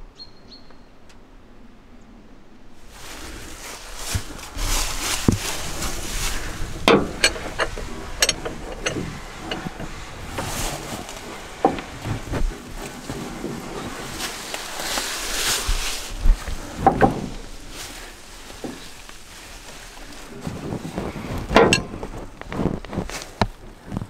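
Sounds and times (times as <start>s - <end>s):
steady rushing noise: 1.4s - 24.0s
metal clanks and knocks: 4.1s - 14.2s, 16.3s - 17.9s, 20.0s - 22.6s.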